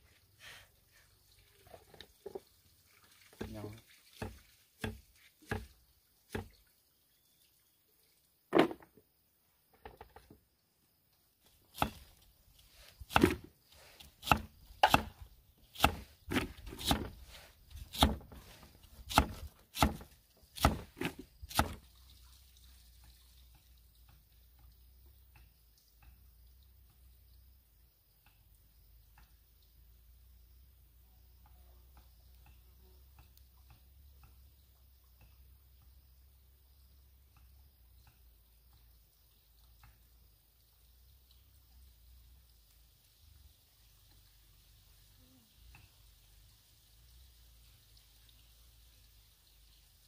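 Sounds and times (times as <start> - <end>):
knife chopping on wooden board: 4.2 - 5.7, 11.8 - 12.1, 13.1 - 13.5, 14.2 - 15.2, 15.8 - 17.2, 17.8 - 21.8.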